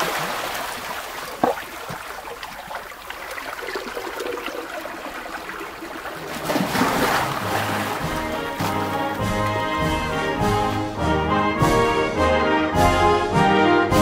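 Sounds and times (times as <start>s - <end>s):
running water trickling: 0.0s - 10.9s.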